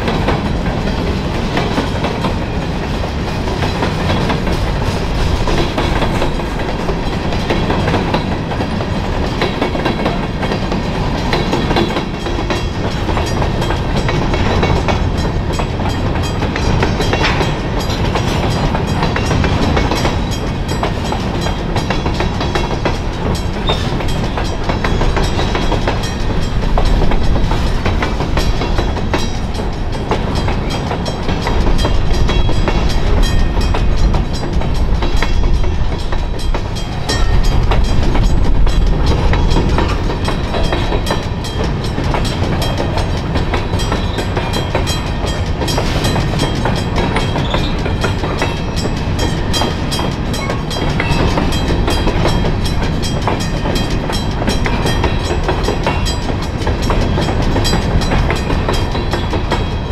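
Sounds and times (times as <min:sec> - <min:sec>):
train wheels clacking on rails: 0:00.0 - 0:59.9
crossing bells ringing: 0:00.5 - 0:59.9.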